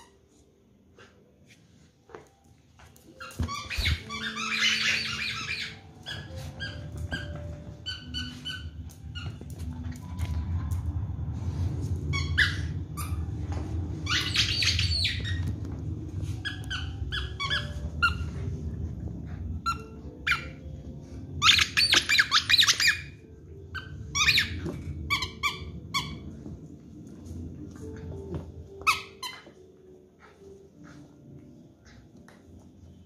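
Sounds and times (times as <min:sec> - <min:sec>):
squeaky dog toy squeaking: 0:03.1 - 0:10.0, 0:14.0 - 0:15.6, 0:16.3 - 0:18.5, 0:19.5 - 0:20.8, 0:21.4 - 0:26.4, 0:28.8 - 0:29.7.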